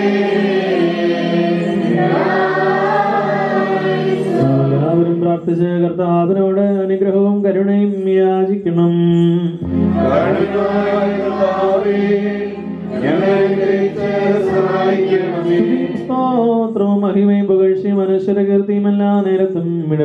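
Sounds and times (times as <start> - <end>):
group of voices singing: 0.0 - 5.2, 9.6 - 16.5
man chanting a hymn: 4.4 - 11.9.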